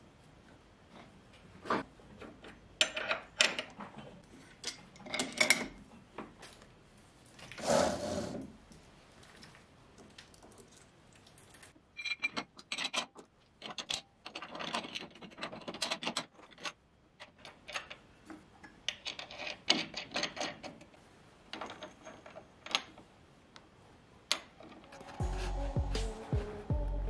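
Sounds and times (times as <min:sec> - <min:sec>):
metal parts clinking and scraping: 0:04.4 - 0:05.8, 0:12.0 - 0:18.0, 0:18.9 - 0:20.9.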